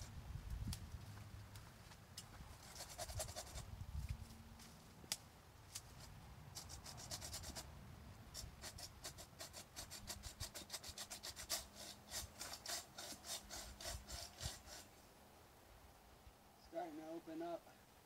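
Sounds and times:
hand saw cutting wood: 2.6 - 3.7, 6.6 - 7.7, 8.4 - 15.0.

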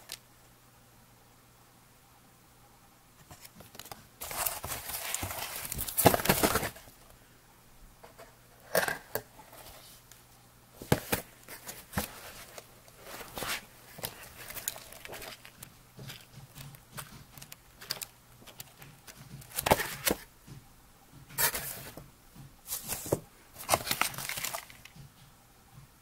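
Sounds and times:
paper and cardboard rustling: 3.2 - 7.0, 10.8 - 20.3, 21.3 - 22.0, 22.7 - 25.0.

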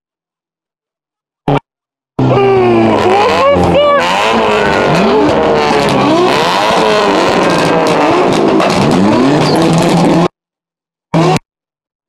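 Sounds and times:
car engines revving: 2.2 - 10.3, 11.2 - 11.4.

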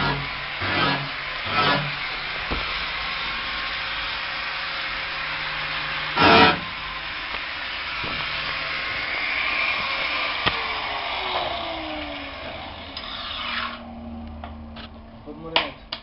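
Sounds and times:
car engine and road noise: 6.6 - 16.0
tone falling in pitch: 11.2 - 15.4.

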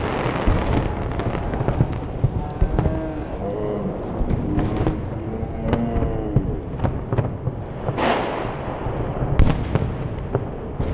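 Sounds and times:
hissing rush of flame: 0.0 - 10.8
fire crackling and popping: 0.0 - 10.9.

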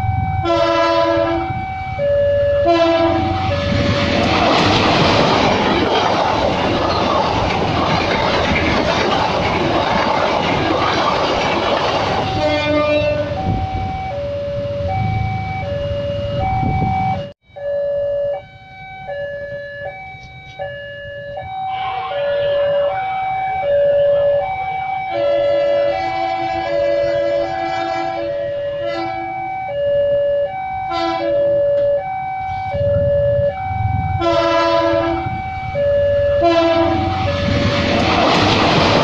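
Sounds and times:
level-crossing alarm two-tone: 0.0 - 4.2, 12.2 - 37.6
train carriages rushing past: 3.0 - 15.4, 20.2 - 29.2, 32.7 - 39.0.

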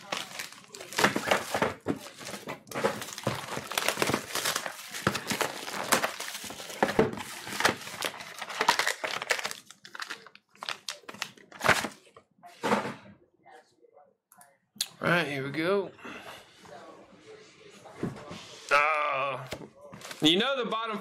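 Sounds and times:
wrappers crinkling: 0.0 - 12.0.

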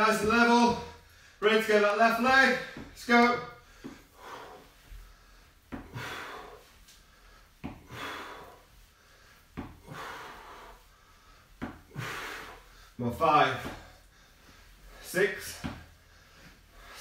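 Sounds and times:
man breathing out hard: 3.6 - 13.0.

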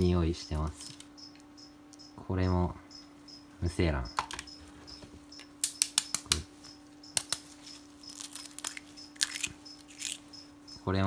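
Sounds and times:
eggshell cracking: 5.6 - 6.4, 7.1 - 10.2.

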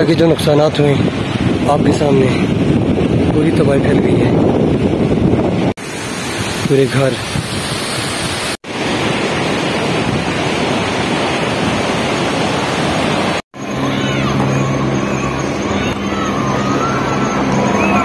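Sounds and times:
river water roaring: 4.4 - 18.0
engine hum: 12.8 - 18.0.

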